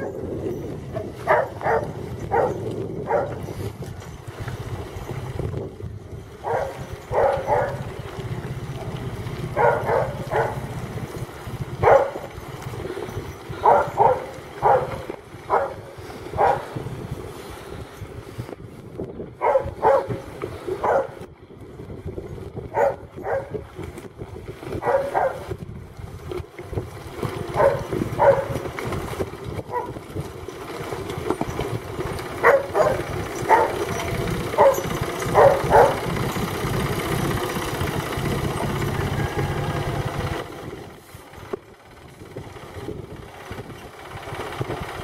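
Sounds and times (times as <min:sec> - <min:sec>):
tractor engine running: 0:00.0 - 0:45.0
dog barking: 0:01.0 - 0:03.4, 0:06.4 - 0:07.8, 0:09.6 - 0:10.7, 0:11.8 - 0:12.2, 0:13.6 - 0:16.7, 0:19.4 - 0:20.2, 0:20.8 - 0:21.2, 0:22.7 - 0:23.6, 0:24.8 - 0:25.5, 0:27.6 - 0:28.6, 0:29.7 - 0:29.9, 0:32.4 - 0:33.9, 0:34.5 - 0:36.1.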